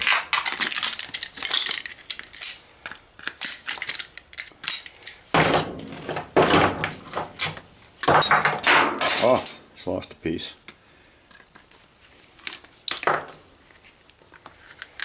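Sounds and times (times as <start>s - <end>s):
metal parts clinking on steel: 0.8s - 5.7s, 7.3s - 9.7s.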